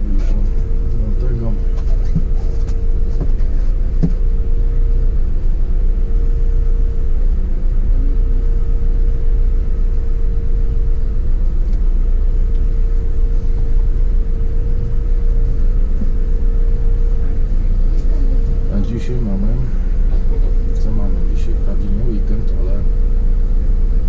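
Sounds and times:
bus engine low rumble: 0:00.0 - 0:24.0
constant hum: 0:00.0 - 0:24.0.

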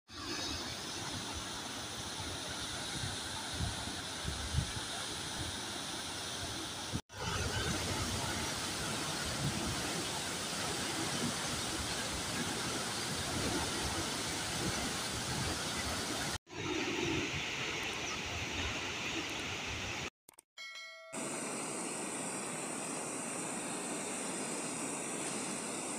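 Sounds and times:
waterfall rushing: 0:00.4 - 0:16.4.

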